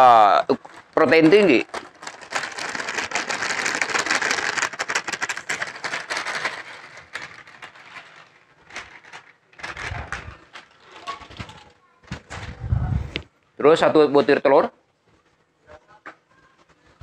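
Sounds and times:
plastic bag crinkling: 0.0 - 12.6.

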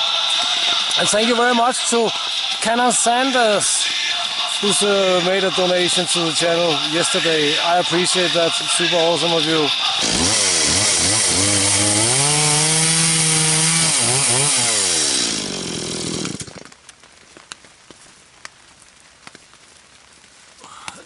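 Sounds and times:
chainsaw cutting through log: 0.0 - 16.8.

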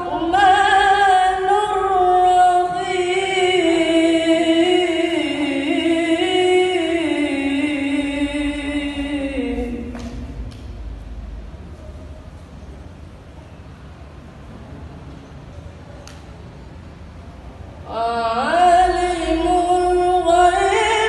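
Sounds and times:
boy reciting melodically: 0.0 - 10.5, 17.8 - 21.0.

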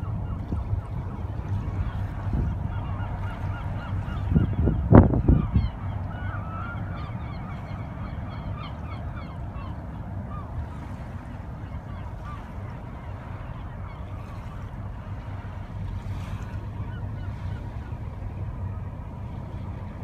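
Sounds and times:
low rumble of ship engines: 0.0 - 20.0
flock of birds calling: 2.5 - 14.7.

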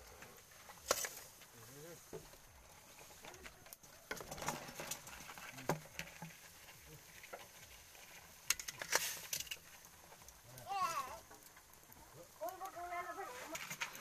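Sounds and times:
snail shells clattering in metal wok: 8.4 - 9.8.

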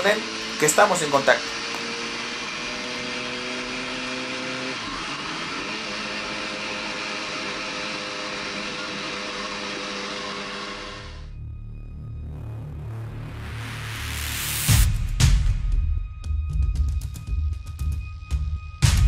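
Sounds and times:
motorcycle engine cruising: 0.0 - 11.3.

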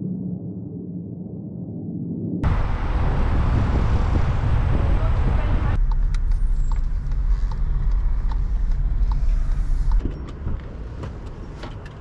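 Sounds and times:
car cabin low rumble: 2.4 - 12.0
street background: 2.4 - 12.0.

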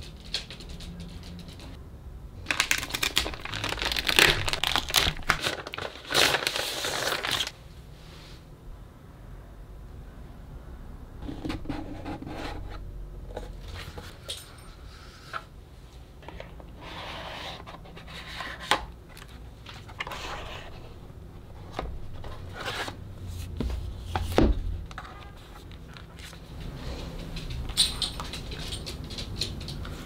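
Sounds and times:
cardboard and paper rustling: 2.5 - 7.6.

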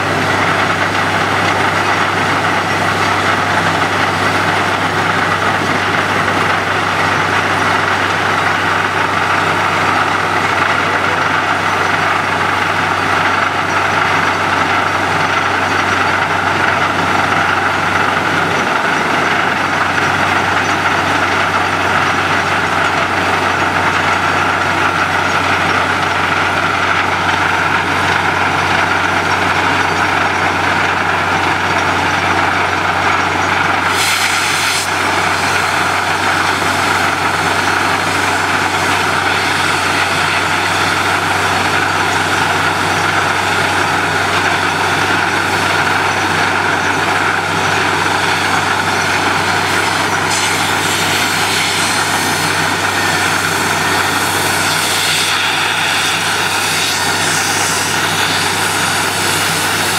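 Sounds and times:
drilling rig engine droning: 0.0 - 59.9
rush of compressed air: 33.8 - 35.9, 50.2 - 59.9
air hissing: 33.8 - 36.9.

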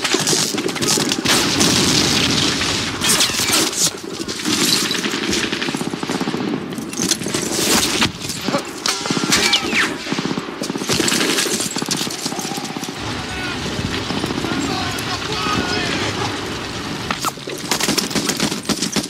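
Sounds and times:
rapid machine-gun and rifle fire: 0.0 - 19.0
loud blasts: 12.9 - 17.4.

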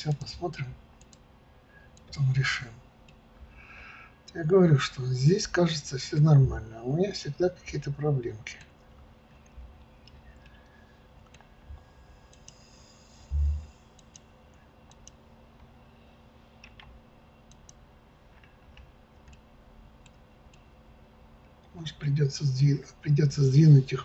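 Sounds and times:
computer mouse clicks: 1.0 - 1.2, 12.3 - 14.3, 14.9 - 15.7, 16.6 - 19.4
short low thump: 13.3 - 13.7.

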